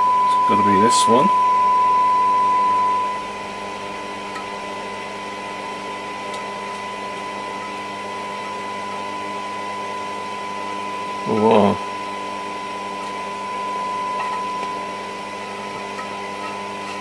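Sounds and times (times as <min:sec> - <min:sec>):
test tone: 0:00.0 - 0:03.4
faint hum: 0:00.0 - 0:17.0
radio static hiss: 0:11.2 - 0:11.9.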